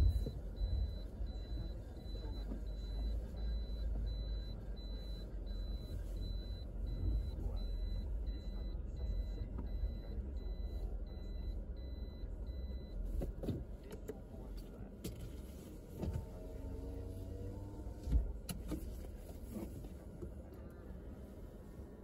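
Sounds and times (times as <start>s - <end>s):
reverse warning beeps: 0.0s - 13.2s
car engine idling: 0.0s - 15.3s.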